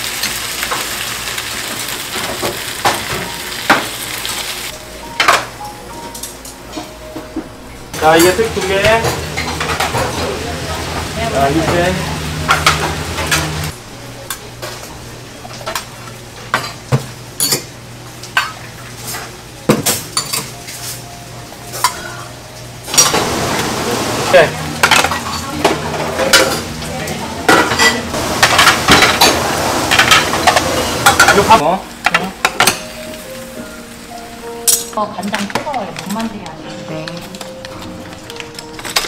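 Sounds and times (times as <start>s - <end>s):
metal bowls clinking on a tray: 24.8s - 26.9s, 27.5s - 32.9s.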